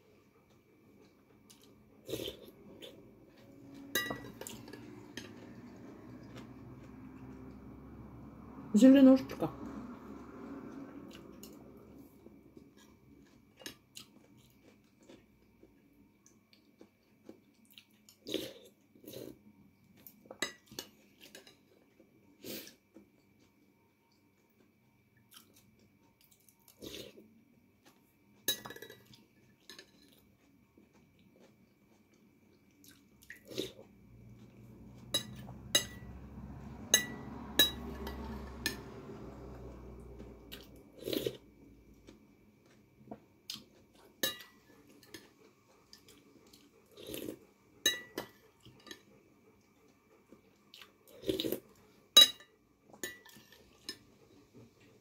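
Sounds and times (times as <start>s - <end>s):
low steady noise: 0.0s - 18.0s, 18.7s - 55.0s
cutlery clinking against a dish: 3.9s - 5.4s, 20.3s - 21.8s, 28.4s - 30.2s, 35.0s - 36.1s, 36.9s - 38.9s, 44.2s - 45.4s, 47.8s - 49.1s, 52.2s - 54.1s.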